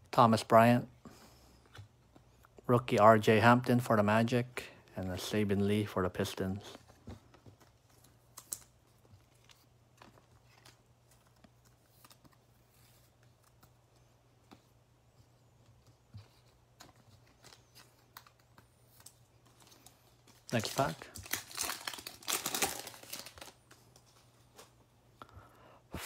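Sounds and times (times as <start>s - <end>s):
cards being shuffled: 6.8s - 24.8s.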